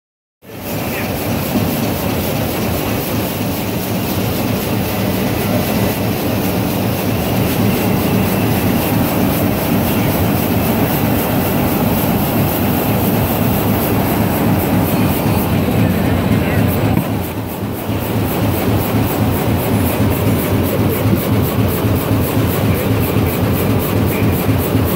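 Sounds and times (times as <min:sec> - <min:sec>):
machine rumble and clatter: 0:00.5 - 0:24.9.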